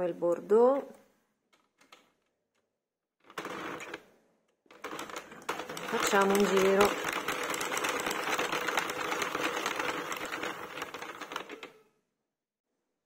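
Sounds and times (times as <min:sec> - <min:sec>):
knitting machine needles rattling: 0:03.2 - 0:04.0, 0:04.7 - 0:11.8.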